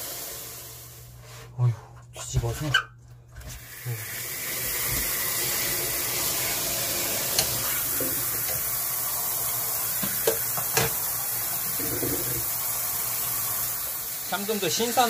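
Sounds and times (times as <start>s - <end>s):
rushing water hiss: 3.8s - 15.0s.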